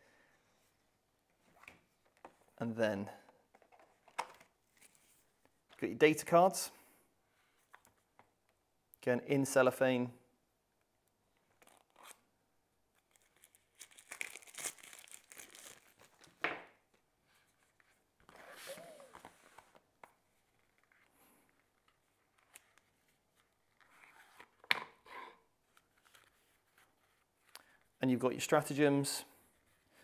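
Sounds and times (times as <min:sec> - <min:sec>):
cellophane wrap tearing and crackling: 0:13.0 - 0:16.4.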